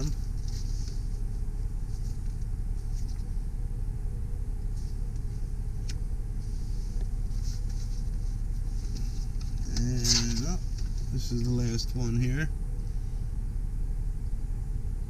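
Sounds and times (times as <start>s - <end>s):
diesel engine idling: 0.0s - 15.0s
light handling noises: 4.6s - 12.0s.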